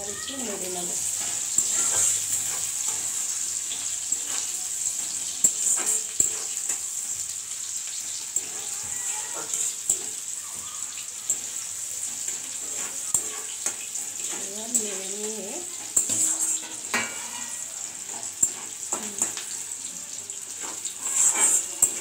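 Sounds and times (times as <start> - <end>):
onion sizzling in hot oil: 0.0 - 22.0
spatula scraping metal pan: 0.3 - 7.2, 8.0 - 10.3, 11.3 - 19.6, 20.5 - 22.0.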